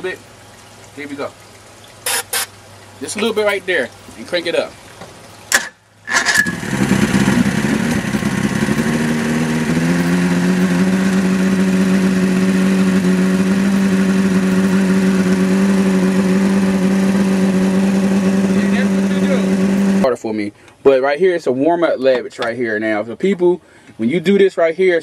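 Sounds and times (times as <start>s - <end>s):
outboard engine starting and idling: 5.6s - 20.1s.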